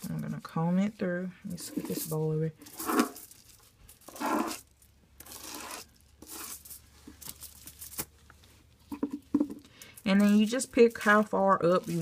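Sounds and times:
aluminium foil crinkling: 1.9s - 8.8s, 9.6s - 12.0s.

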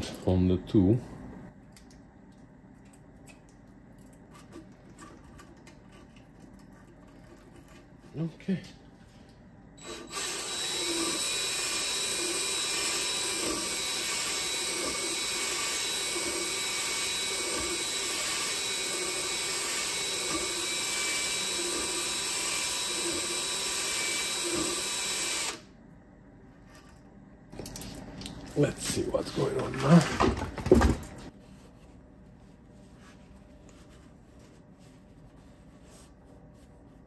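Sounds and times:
cordless drill spinning: 9.8s - 25.7s.

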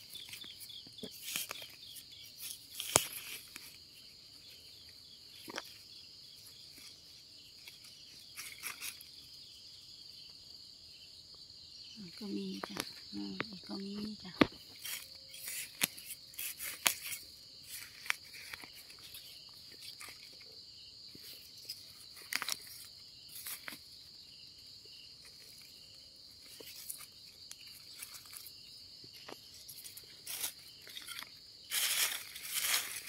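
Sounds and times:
knife scraping in soil and leaves: 0.0s - 4.1s, 7.6s - 9.2s, 14.5s - 20.5s, 21.3s - 23.8s, 26.5s - 33.0s
night insects trilling: 0.0s - 33.0s.

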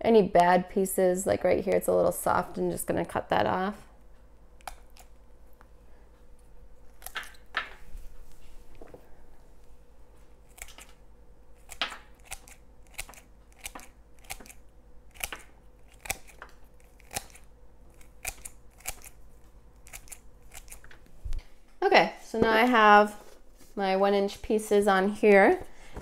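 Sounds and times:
hand pruners snipping roots: 11.7s - 19.2s.

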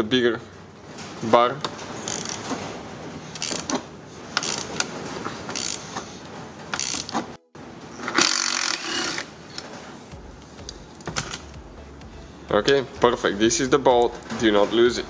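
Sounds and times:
ratchet wrench clicking: 2.0s - 2.6s, 3.3s - 3.8s, 4.4s - 4.8s, 5.5s - 5.9s, 6.8s - 7.2s, 8.2s - 9.2s.

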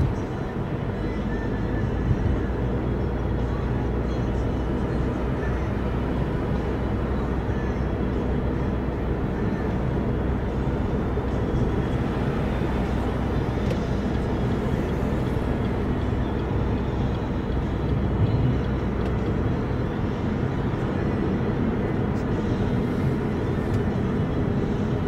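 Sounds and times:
car tyre and engine rumble: 0.0s - 25.0s.

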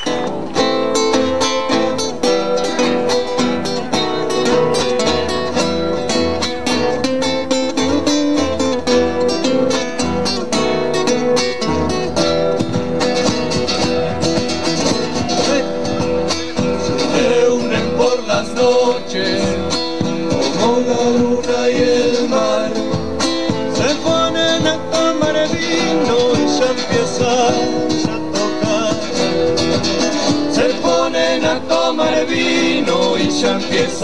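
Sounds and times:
acoustic guitars strumming and picking: 0.0s - 34.0s
bass drum beating: 11.7s - 31.7s.

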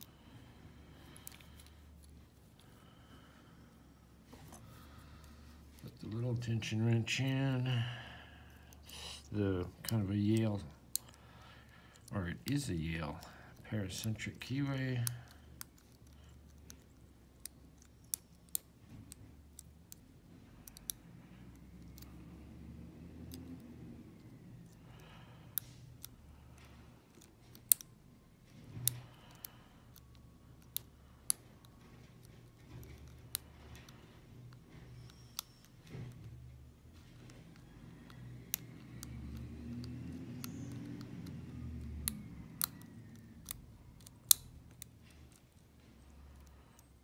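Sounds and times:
hands rubbing lock: 25.6s - 47.0s
lock pick metallic clicks: 28.8s - 36.2s, 42.0s - 45.7s.

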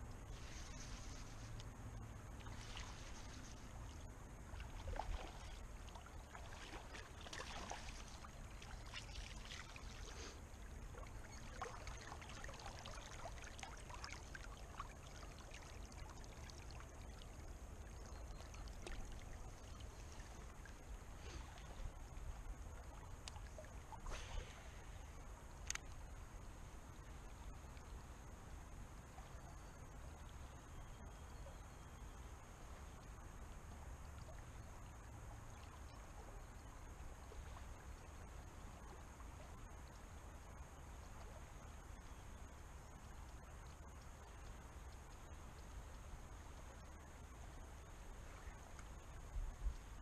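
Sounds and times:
river flowing: 0.0s - 27.3s.

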